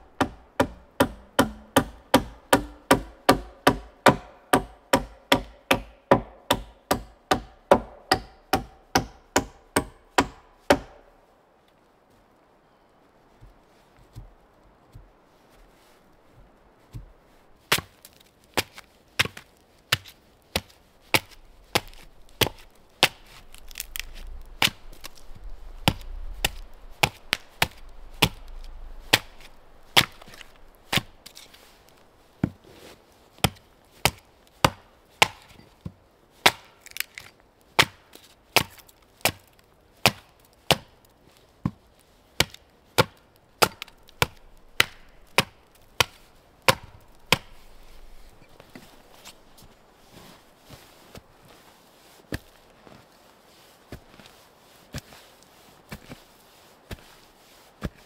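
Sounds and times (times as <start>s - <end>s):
hatchet chopping wood: 0.2s - 11.1s, 17.7s - 17.9s, 18.6s - 31.4s, 33.4s - 37.1s, 37.8s - 38.0s, 38.6s - 39.4s, 40.0s - 40.9s, 42.4s - 47.8s.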